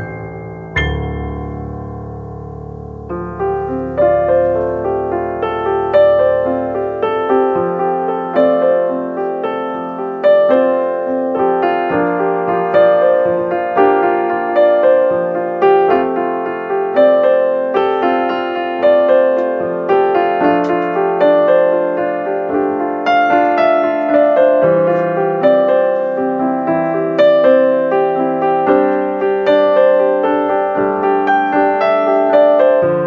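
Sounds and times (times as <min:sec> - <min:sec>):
piano melody: 0:00.0 - 0:33.0.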